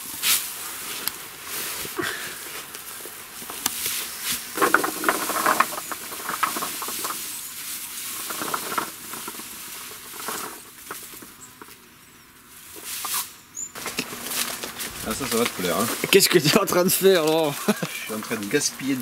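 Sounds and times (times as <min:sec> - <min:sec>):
plastic mesh sacks rustling: 0:00.0 - 0:11.4, 0:13.8 - 0:19.0
bulbs rattling into plastic bucket: 0:04.5 - 0:07.4, 0:08.1 - 0:11.3.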